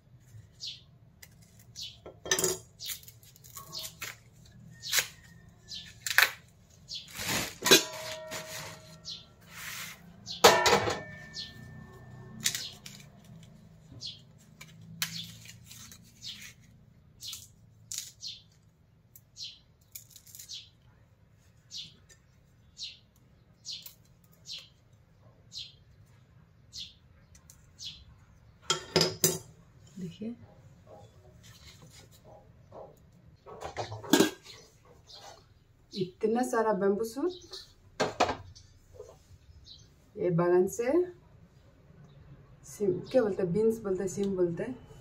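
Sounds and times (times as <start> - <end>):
metal bowl clanging: 7.6 - 9.3, 10.3 - 12.2, 33.6 - 34.6.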